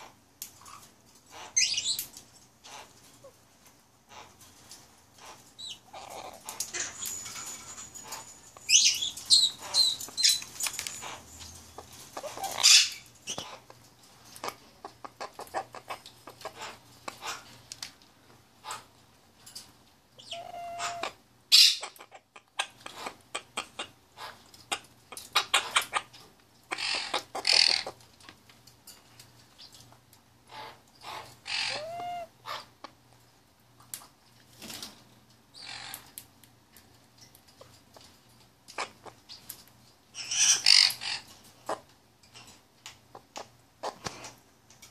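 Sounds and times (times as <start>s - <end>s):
bird chirps and squawks: 0.0s - 2.0s, 2.6s - 3.4s, 4.1s - 4.4s, 5.2s - 13.8s, 14.4s - 17.6s, 20.2s - 28.0s, 30.5s - 32.8s, 35.6s - 36.1s, 40.1s - 44.3s
beak clicks and crunches: 4.2s - 18.0s.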